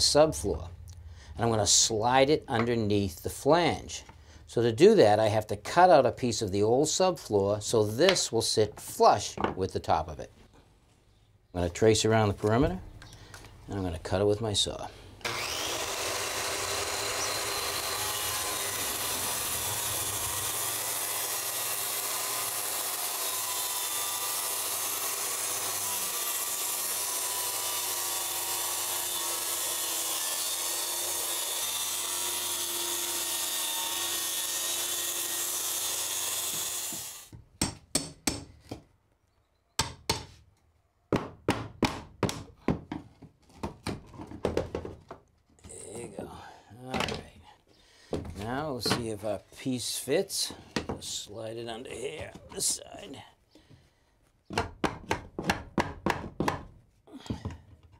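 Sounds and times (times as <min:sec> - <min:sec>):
circular saw cutting plywood: 0:15.2 - 0:37.3.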